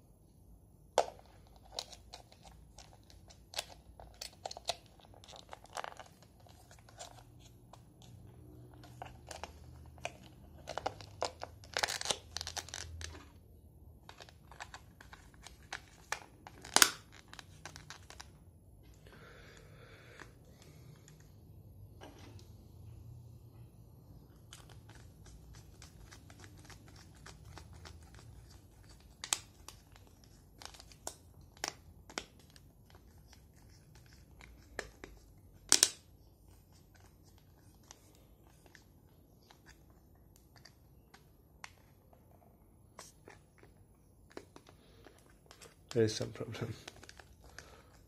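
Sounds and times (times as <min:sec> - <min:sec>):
rubbing of plastic and rubber: 0:24.5 - 0:31.1.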